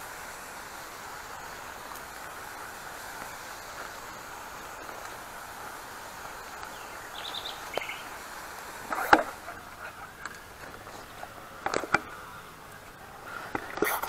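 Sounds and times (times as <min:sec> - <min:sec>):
high bird chirps: 0:06.5 - 0:08.2.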